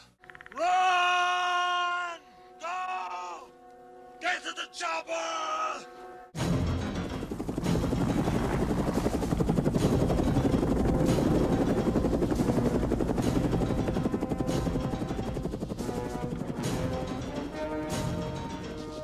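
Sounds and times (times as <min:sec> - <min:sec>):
music playing: 0:03.5 - 0:19.0
helicopter rotor chopping: 0:06.4 - 0:18.8.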